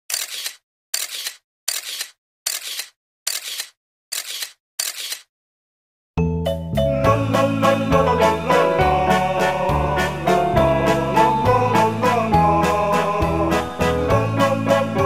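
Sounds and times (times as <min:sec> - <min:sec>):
music: 0:06.2 - 0:15.0.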